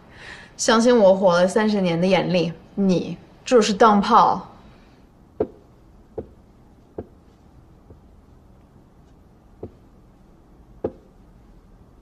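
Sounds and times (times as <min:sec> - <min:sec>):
billiard balls knocking: 0:05.4 - 0:08.2, 0:09.6 - 0:09.9, 0:10.8 - 0:11.2.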